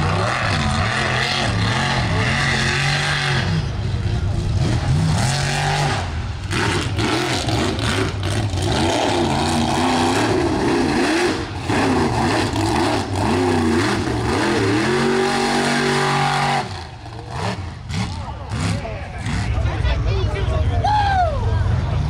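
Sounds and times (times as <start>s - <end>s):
mud truck engines revving: 0.0s - 22.0s.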